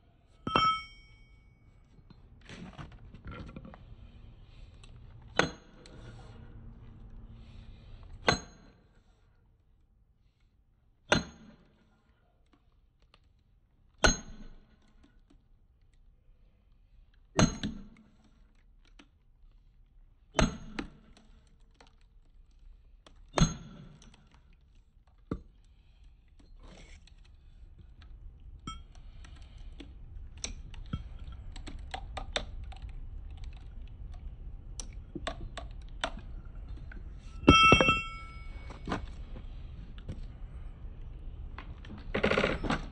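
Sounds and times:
hammer striking steel wedge: 0:00.4 - 0:01.1, 0:37.4 - 0:38.8.

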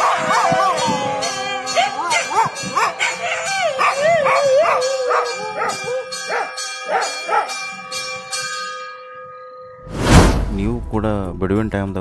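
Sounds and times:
dogs howling and yelping: 0:00.0 - 0:07.6.

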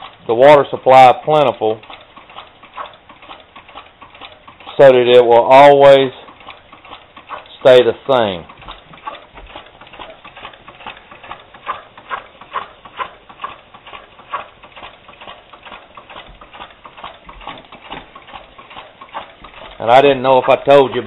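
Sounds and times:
steam engine clicking patter: 0:00.0 - 0:21.0.

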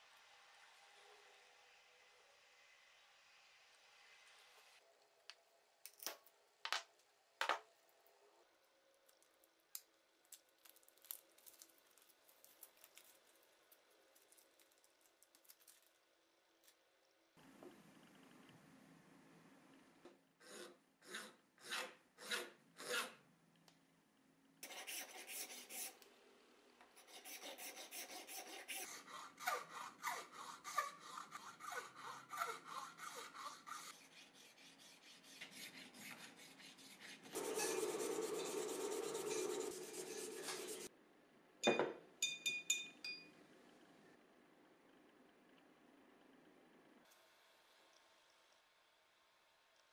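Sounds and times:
hand file rasping: 0:20.4 - 0:23.2, 0:27.0 - 0:40.9.

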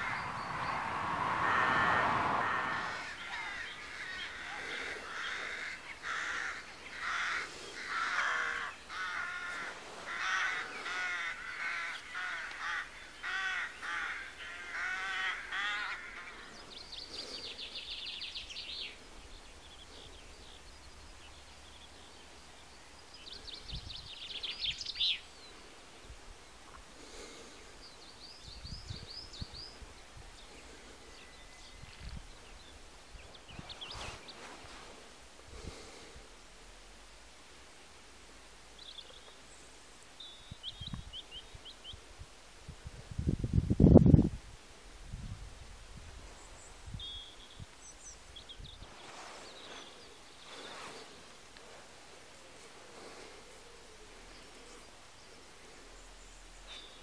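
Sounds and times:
crows cawing: 0:00.0 - 0:17.5
songbirds trilling and chirping: 0:00.0 - 0:43.0, 0:46.0 - 0:57.0.

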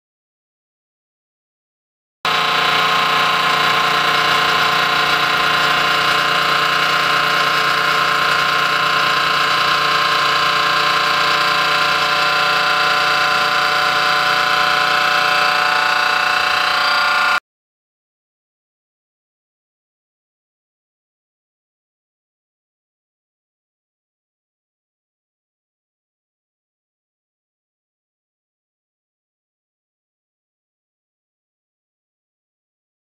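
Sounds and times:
grinding wheel whining on steel: 0:02.3 - 0:17.4.

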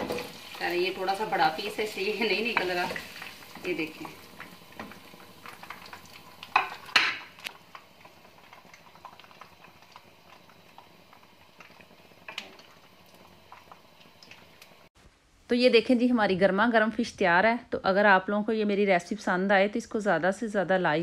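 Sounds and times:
ghee sizzling in pan: 0:00.0 - 0:15.0.

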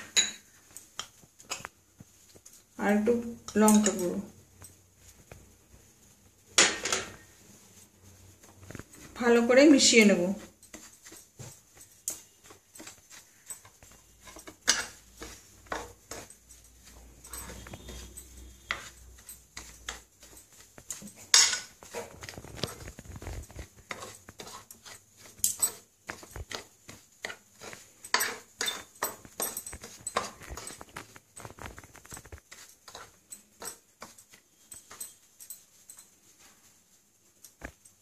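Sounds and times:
spoon scraping glass plate: 0:08.6 - 0:36.1.

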